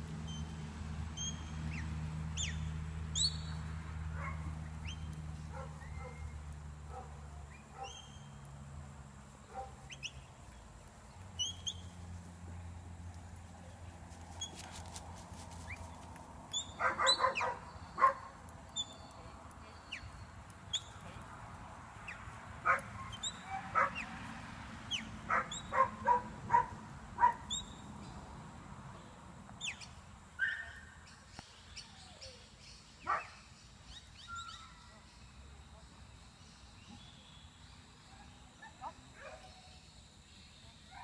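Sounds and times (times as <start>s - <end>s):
birds chirping: 0.2s - 8.5s, 9.2s - 12.9s, 15.6s - 24.2s, 24.8s - 28.3s.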